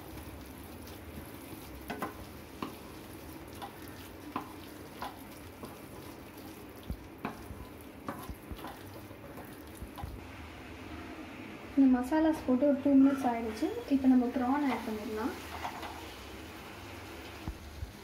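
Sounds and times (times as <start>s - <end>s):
frying sizzle: 0.0s - 18.0s
spatula scraping a pan: 7.2s - 10.1s, 14.7s - 16.2s.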